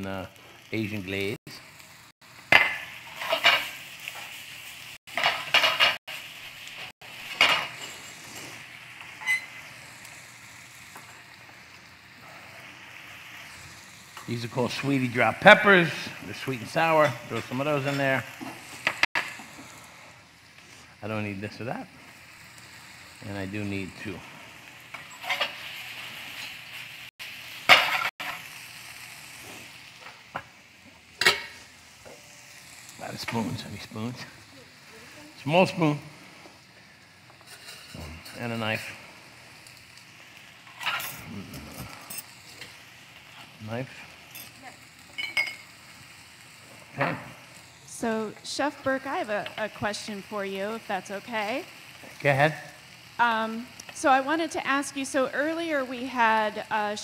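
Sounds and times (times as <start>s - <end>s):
food sizzling in a frying pan: 0.0s - 57.0s
pan being stirred and tossed: 2.5s - 4.4s, 5.1s - 9.5s.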